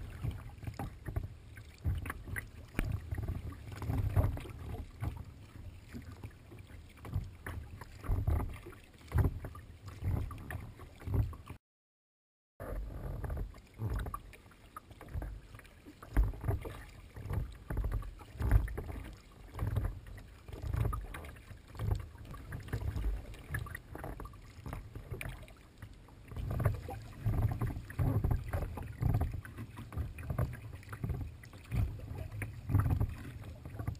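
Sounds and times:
water splashing against kayak hull: 0:00.0 - 0:11.6, 0:12.6 - 0:33.9.

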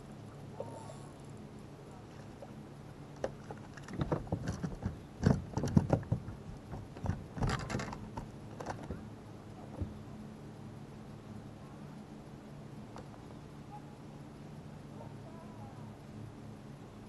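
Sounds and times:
faint low hum: 0:00.0 - 0:17.0
knocks against a boat: 0:03.2 - 0:09.0, 0:09.7 - 0:10.0.

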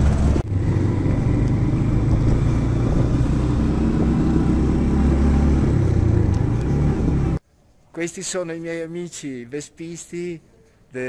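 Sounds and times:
vehicle engine and road noise: 0:00.0 - 0:07.4.

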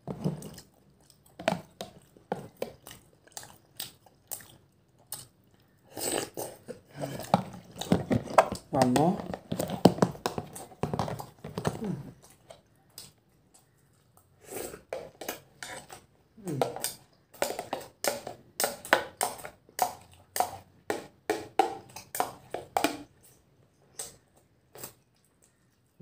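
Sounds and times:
eating noises: 0:00.0 - 0:26.0
spoon scraping plastic tub: 0:07.0 - 0:12.1, 0:14.8 - 0:23.3
person speaking with mouth full: 0:08.6 - 0:09.3, 0:11.7 - 0:12.2, 0:16.4 - 0:16.9.

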